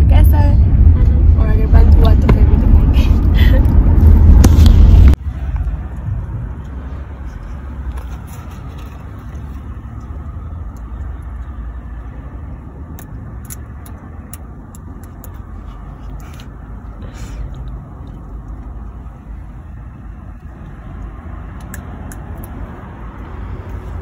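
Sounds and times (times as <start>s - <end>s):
car cabin rumble: 0.0s - 12.0s.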